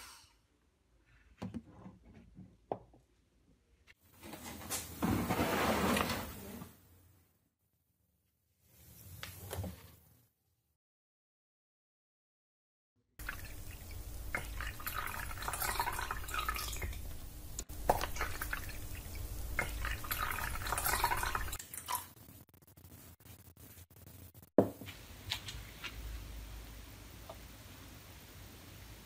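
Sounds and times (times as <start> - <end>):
liquid pouring into water: 13.2 - 22.1
knock: 24.6 - 24.9.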